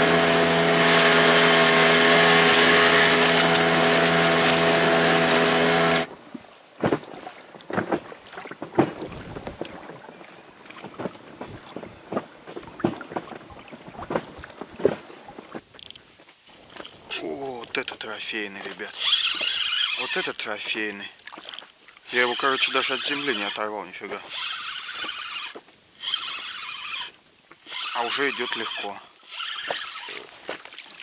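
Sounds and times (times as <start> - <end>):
outboard motor running: 0.0 - 15.6, 22.1 - 30.5.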